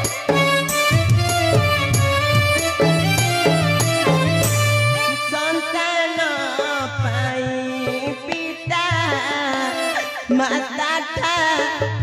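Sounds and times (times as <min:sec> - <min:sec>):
wavering held melody: 0:00.0 - 0:05.6.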